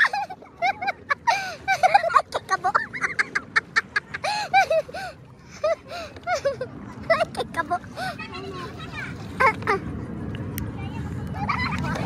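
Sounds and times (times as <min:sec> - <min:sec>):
water splashing: 0:00.0 - 0:12.0
people laughing and shrieking: 0:11.2 - 0:12.0.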